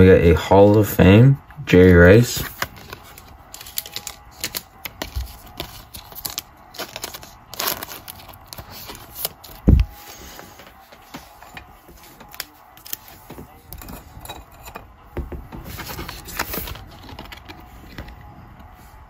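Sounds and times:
plastic sleeve crinkling: 0:02.4 - 0:10.0.

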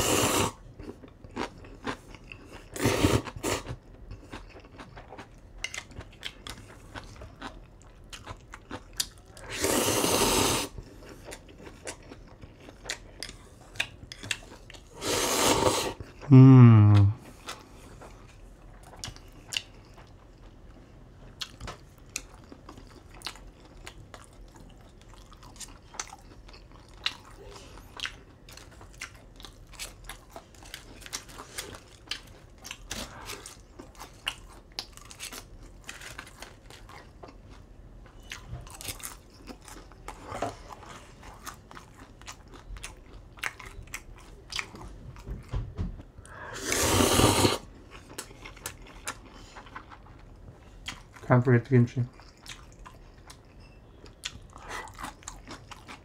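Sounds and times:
slurping noodles: 0:00.0 - 0:00.6, 0:02.8 - 0:03.6, 0:09.4 - 0:10.8, 0:14.9 - 0:16.0, 0:46.5 - 0:47.7
chewing and crunching: 0:00.6 - 0:09.6, 0:10.7 - 0:15.0, 0:17.2 - 0:46.4, 0:47.6 - 0:56.0.

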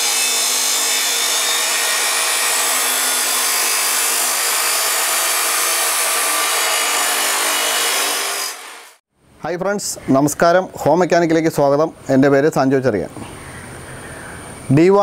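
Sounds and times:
cut-off wheel grinding steel: 0:00.0 - 0:09.0.

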